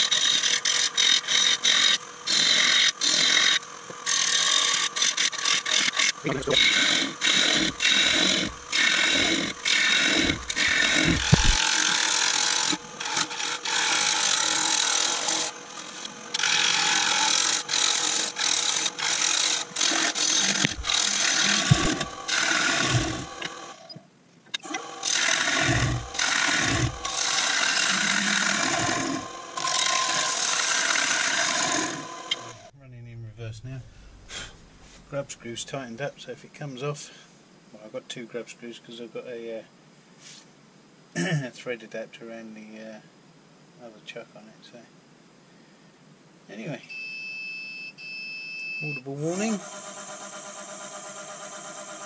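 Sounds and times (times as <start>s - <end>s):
lathe humming: 0.0s - 23.9s, 24.6s - 32.7s
tool cutting wood hissing: 0.0s - 24.0s, 24.6s - 32.7s, 33.7s - 35.5s.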